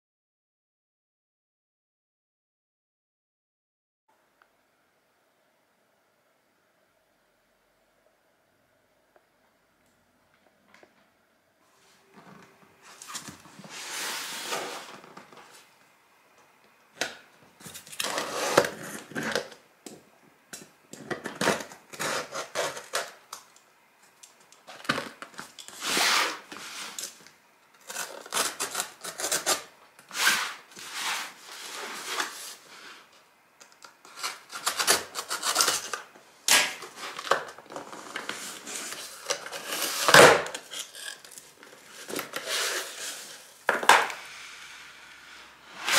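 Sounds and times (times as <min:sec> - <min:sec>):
cardboard flaps scraping: 0:12.0 - 0:15.7, 0:25.8 - 0:27.0
tape being torn: 0:33.8 - 0:43.1.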